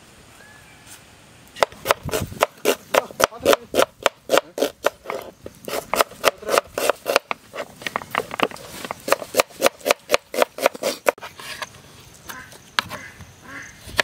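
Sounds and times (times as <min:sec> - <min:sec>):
knife chopping on wooden board: 0:01.6 - 0:07.4, 0:09.1 - 0:11.2.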